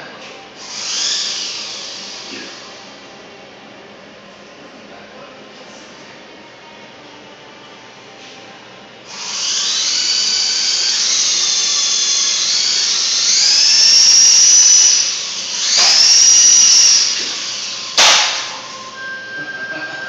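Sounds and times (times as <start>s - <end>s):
rc helicopter rotor whining: 0.6s - 2.8s, 9.1s - 18.7s.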